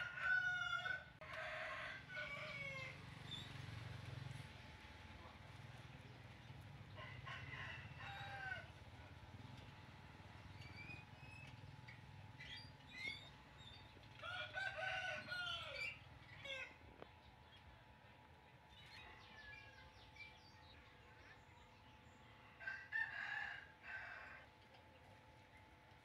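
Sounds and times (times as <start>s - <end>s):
rooster crowing: 0.0s - 3.1s, 7.0s - 8.8s, 14.2s - 16.8s, 22.6s - 24.5s
small birds chirping: 10.1s - 14.2s, 15.2s - 22.6s.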